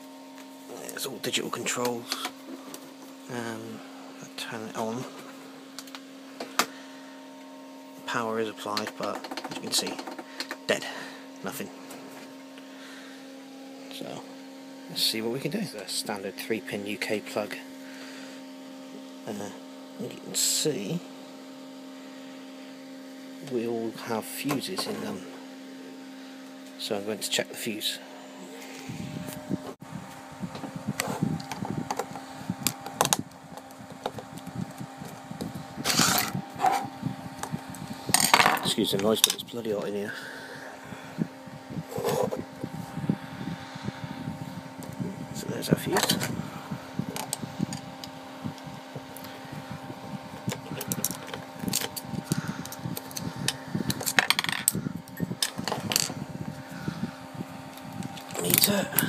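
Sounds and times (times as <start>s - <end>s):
electric fan humming: 0.0s - 59.0s.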